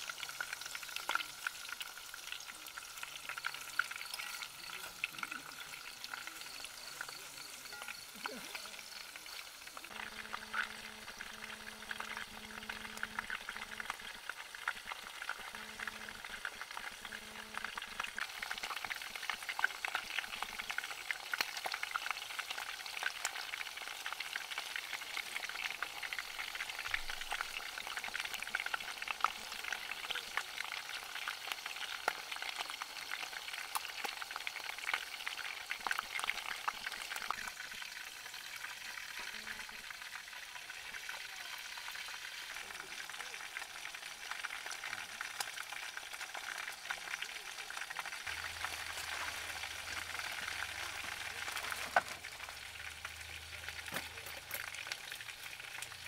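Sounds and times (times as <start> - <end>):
chicken sizzling in hot oil: 0.0 - 56.0.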